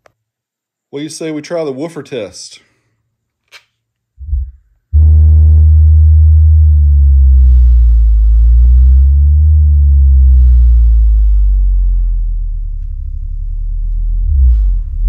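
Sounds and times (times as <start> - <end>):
deep sustained bass tone: 4.2 - 15.0.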